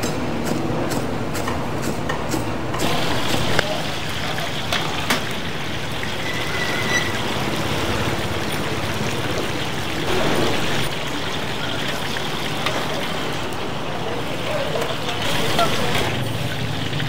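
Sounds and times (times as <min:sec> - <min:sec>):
busy kitchen background noise: 0:00.0 - 0:17.0
brief high squeal: 0:06.2 - 0:07.3.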